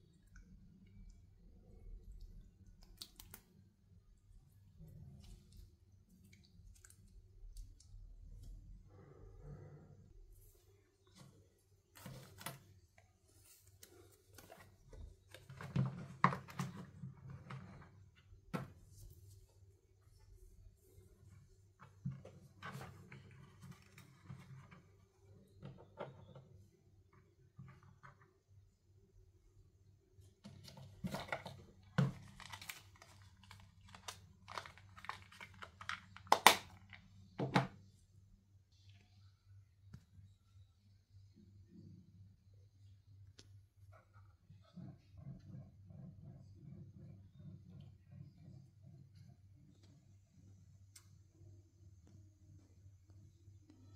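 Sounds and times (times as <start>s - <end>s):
plastic box and card rustling: 11.9s - 18.8s, 30.5s - 37.7s.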